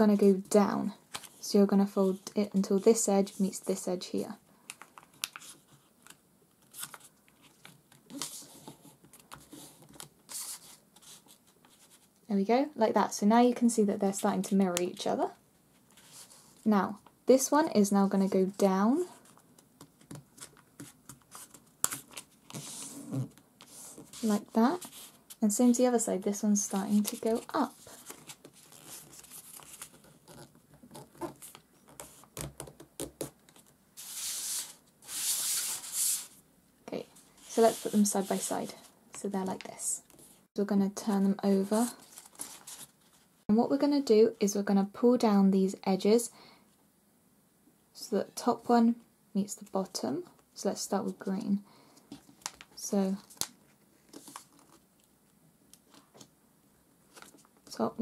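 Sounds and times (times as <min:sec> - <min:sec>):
paper rustling and creasing: 0:04.8 - 0:12.2, 0:19.0 - 0:25.4, 0:26.6 - 0:36.4, 0:41.6 - 0:43.3, 0:52.1 - 0:55.1, 0:57.1 - 0:57.7
paper sliding across table: 0:22.5 - 0:25.2, 0:34.0 - 0:36.4, 0:37.4 - 0:38.5
paper crinkling and rustling: 0:41.7 - 0:43.3, 0:52.1 - 0:55.1.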